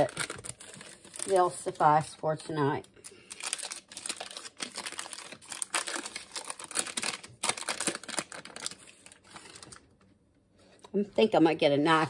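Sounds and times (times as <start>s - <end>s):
paper wrapper crinkling: 0.0s - 2.2s, 2.9s - 10.1s.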